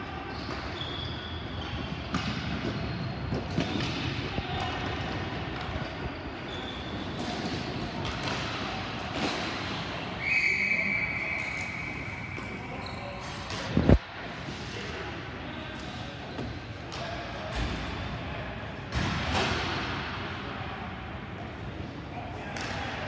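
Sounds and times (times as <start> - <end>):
referee whistle: 10.2 - 13.0.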